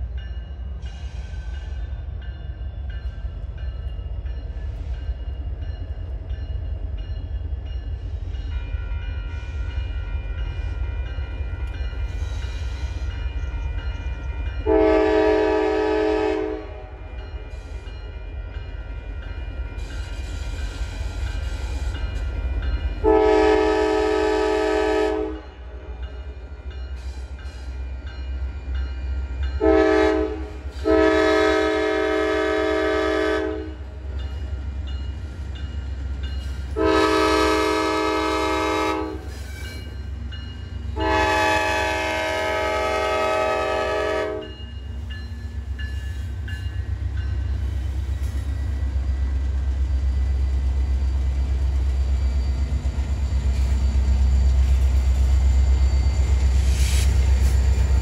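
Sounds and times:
locomotive air horn blasts: 14.6s - 17.1s, 23.0s - 25.4s, 29.6s - 33.8s, 36.8s - 39.7s, 41.0s - 44.5s.

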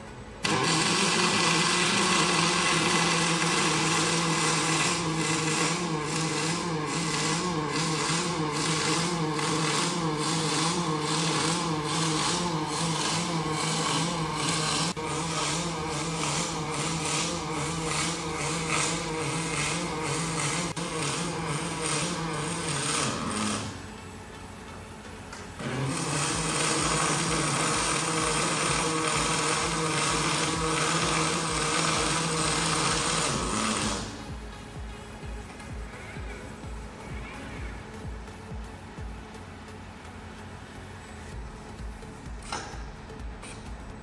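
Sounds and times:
welding arc crackling: 0.4s - 24.4s, 25.3s - 36.8s.

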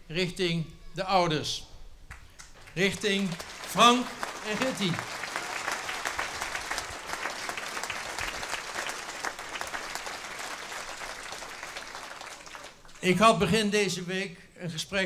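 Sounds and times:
crowd applauding: 2.4s - 13.0s.

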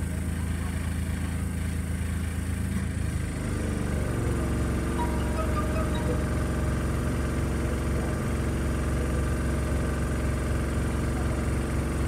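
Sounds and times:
tram motor hum: 3.2s - 8.4s.

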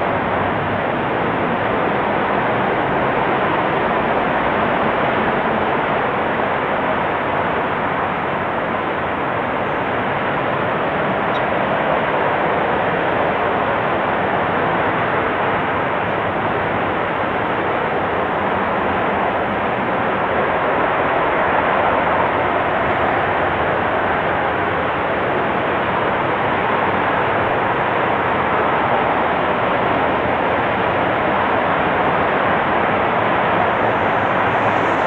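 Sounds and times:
rocket engine rushing roar: 28.5s - 35.0s.

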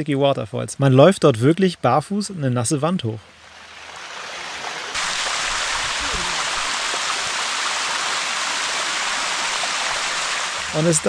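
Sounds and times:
waterfall rushing over rocks: 4.9s - 11.0s.

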